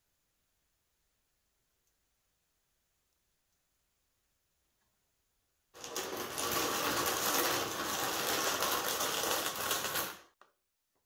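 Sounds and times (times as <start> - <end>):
plastic basin scraping concrete floor: 5.8 - 10.4.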